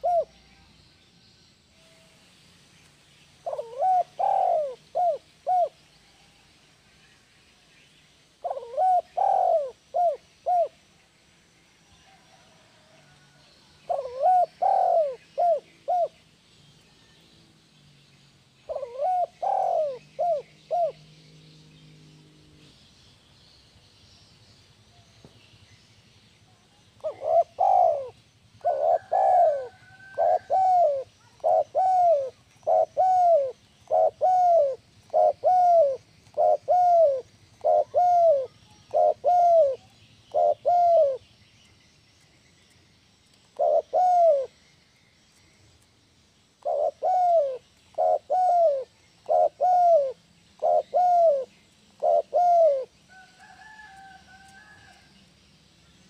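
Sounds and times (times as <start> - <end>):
dove cooing: 0.0 - 0.5, 3.4 - 5.8, 8.4 - 10.8, 12.1 - 16.2, 18.6 - 21.0, 27.0 - 41.2, 43.6 - 44.6, 46.6 - 55.0
small birds chirping: 0.0 - 54.0.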